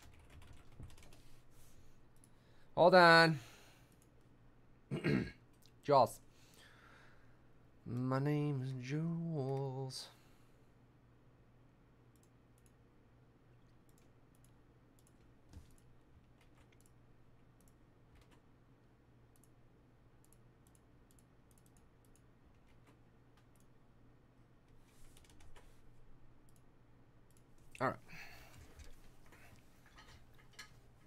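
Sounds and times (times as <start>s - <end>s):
computer keyboard typing clicks: 0.0s - 1.2s, 13.8s - 17.0s, 20.2s - 23.7s.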